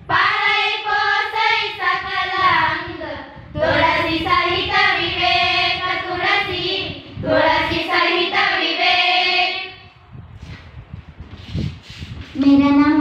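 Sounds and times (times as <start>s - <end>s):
girls singing unaccompanied: 0.0s - 10.0s.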